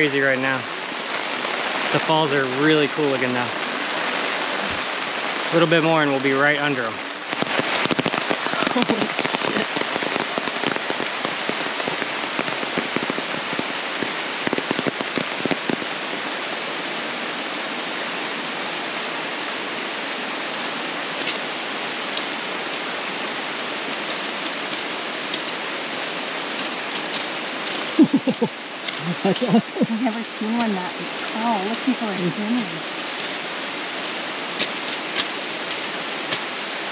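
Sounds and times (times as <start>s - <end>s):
heavy rain pouring: 0.0s - 36.9s
raindrops pattering on umbrella: 0.0s - 36.9s.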